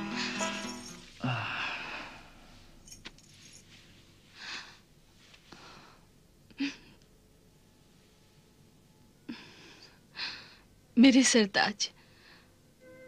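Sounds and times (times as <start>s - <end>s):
soft breaths: 0.0s - 7.0s
faint rustling: 2.4s - 4.4s.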